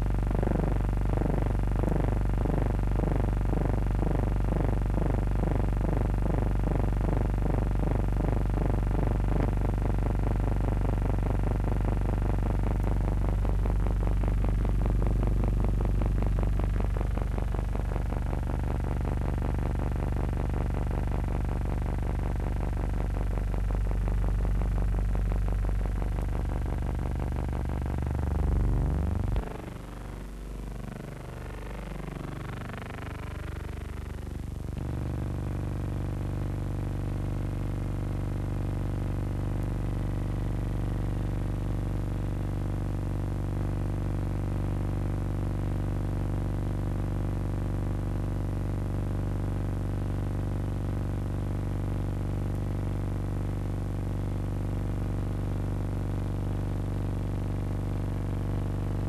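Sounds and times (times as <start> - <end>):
synthesizer low drone: 0.0 - 41.5
rapidly repeating falling tone: 27.6 - 34.4.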